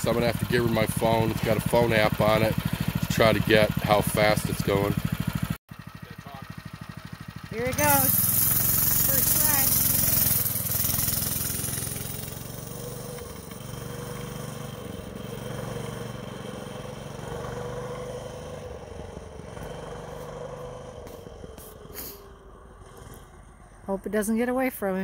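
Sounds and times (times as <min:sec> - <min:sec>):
mini bike engine passing by: 0:00.0 - 0:24.7.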